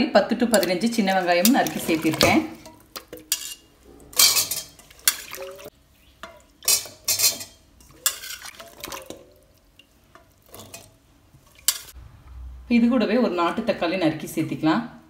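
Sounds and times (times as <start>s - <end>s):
metal ladle clinking in pot: 0.5s - 9.3s, 10.1s - 12.0s.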